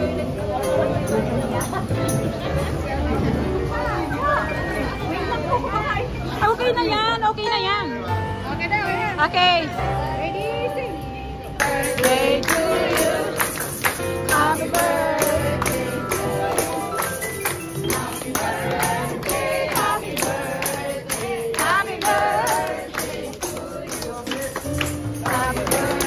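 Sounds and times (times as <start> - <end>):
group singing: 11.5 - 26.0
hand claps: 11.6 - 26.0
tambourine jingles: 11.6 - 26.0.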